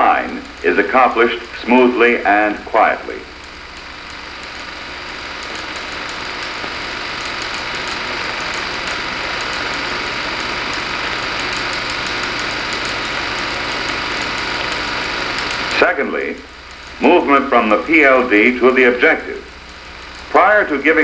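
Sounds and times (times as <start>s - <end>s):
narration voice: 0.0s - 3.4s, 15.7s - 19.5s, 20.3s - 21.0s
film soundtrack hiss and hum: 0.0s - 21.0s
rapid crackle ticking: 0.0s - 21.0s.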